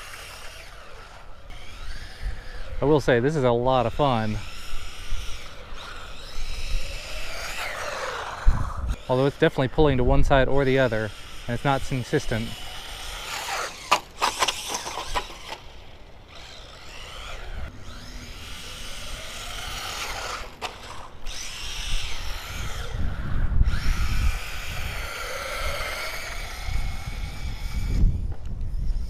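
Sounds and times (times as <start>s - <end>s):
electric motor whining: 0.0s - 29.0s
wind on microphone: 1.5s - 10.7s, 21.3s - 29.0s
toy truck bouncing on concrete: 11.2s - 23.0s.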